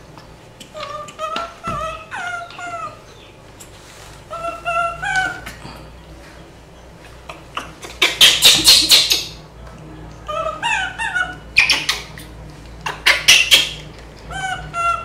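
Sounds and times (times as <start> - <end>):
baby monkeys cooing: 0.5 - 6.0, 7.1 - 9.4, 10.2 - 15.0
baby monkeys screeching: 0.7 - 3.3, 4.3 - 5.6, 7.5 - 9.4, 10.3 - 15.0.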